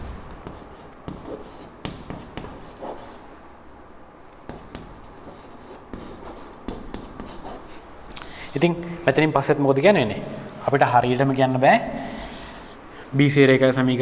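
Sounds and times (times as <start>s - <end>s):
chalk scratching on chalkboard: 0.4s - 3.2s, 4.5s - 7.8s
chalk tapping on board: 0.4s - 3.2s, 4.5s - 7.6s.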